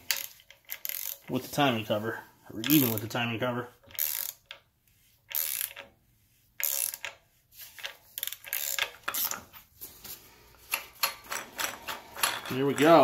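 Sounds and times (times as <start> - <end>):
ratchet wrench clicking: 0.0 - 1.3, 2.6 - 3.1, 3.9 - 4.6, 5.3 - 5.9, 6.6 - 9.4.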